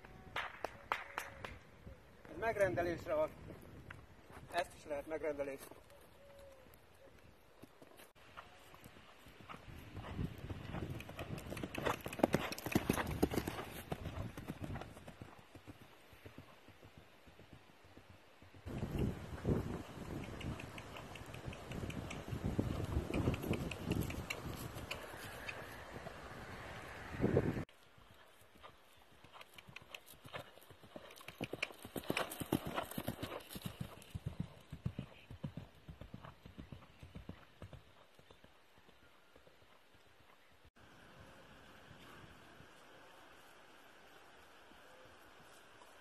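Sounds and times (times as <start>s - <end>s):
horse hoofbeats on grass: 7.6s - 25.8s, 27.8s - 39.0s.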